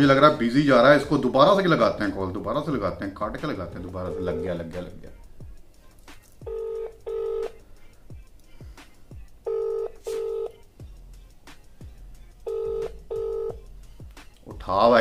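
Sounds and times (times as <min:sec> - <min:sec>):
phone ringback tone: 0:04.0 - 0:04.7, 0:06.5 - 0:07.6, 0:09.5 - 0:10.6, 0:12.5 - 0:13.6.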